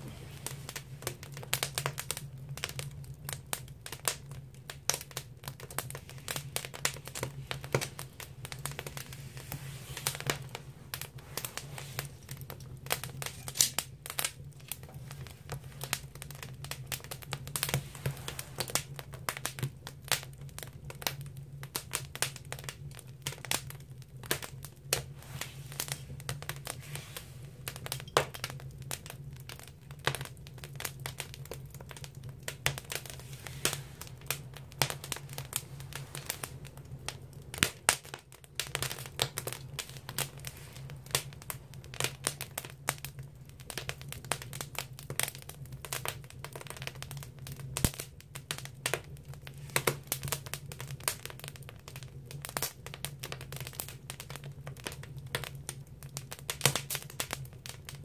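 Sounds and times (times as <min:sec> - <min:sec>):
steady low hum: 0:00.0 - 0:03.6
firewood crackling and popping: 0:00.0 - 0:58.0.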